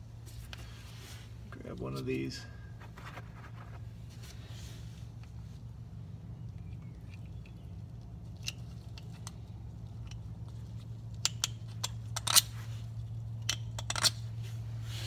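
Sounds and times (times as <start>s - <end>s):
steady low hum: 0.0s - 15.0s
metal clicks and clinks: 11.2s - 12.5s, 13.4s - 14.2s.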